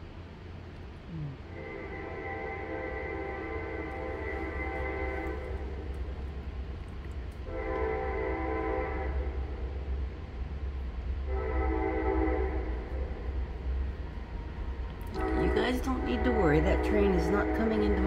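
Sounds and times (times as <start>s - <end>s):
train horn blasts: 1.5s - 5.9s, 7.4s - 9.6s, 11.2s - 13.3s, 15.1s - 18.0s
steady low rumble: 3.2s - 8.3s.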